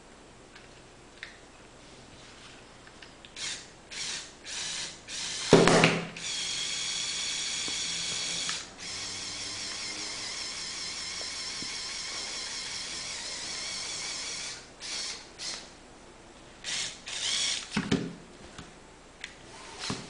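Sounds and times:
small electric motor whining: 6.2 - 15.7, 16.6 - 17.8
toy crane mechanism noise: 6.2 - 15.7, 16.6 - 17.8.

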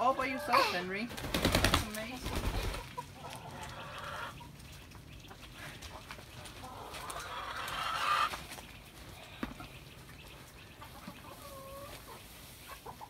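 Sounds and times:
hens clucking: 0.0 - 13.0.

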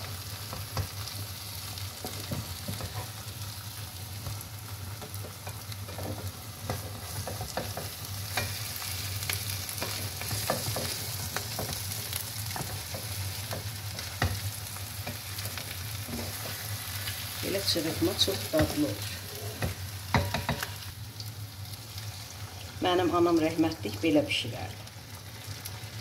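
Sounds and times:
food sizzling in a frying pan: 0.0 - 26.0
spatula scraping a pan: 5.0 - 17.4.

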